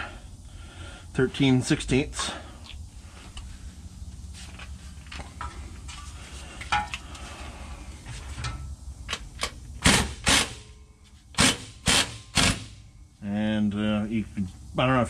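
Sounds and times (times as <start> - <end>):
impact wrench bursts: 9.8 - 10.8, 11.4 - 12.9.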